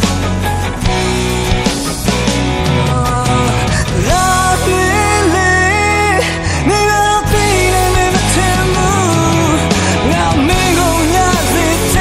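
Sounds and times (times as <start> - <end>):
band with bass and guitar: 0.0 - 12.0
person singing long notes: 2.9 - 12.0.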